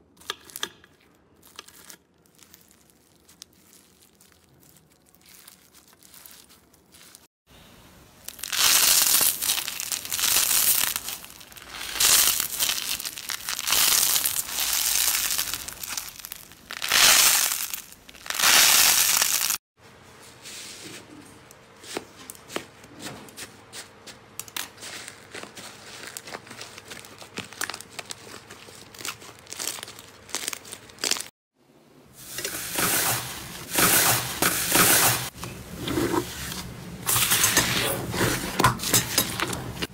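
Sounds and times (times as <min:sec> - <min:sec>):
crunchy slime crackling and popping: 0:01.4 - 0:07.3, 0:08.2 - 0:19.6, 0:24.5 - 0:31.3.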